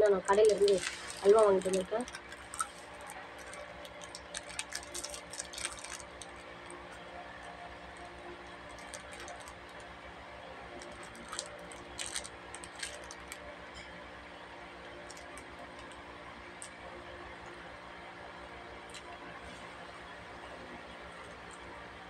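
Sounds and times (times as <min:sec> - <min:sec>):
plastic wrapper crinkling: 0:00.0 - 0:06.8, 0:07.4 - 0:09.9, 0:10.7 - 0:13.4, 0:15.0 - 0:16.0.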